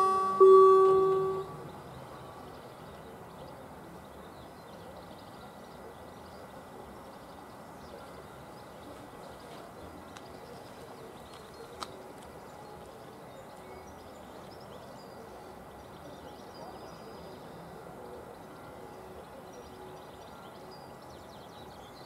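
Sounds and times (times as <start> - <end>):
level crossing bell ding: 0.0 - 1.6
bird chirps: 0.0 - 3.0
faint outdoor ambience: 0.0 - 22.0.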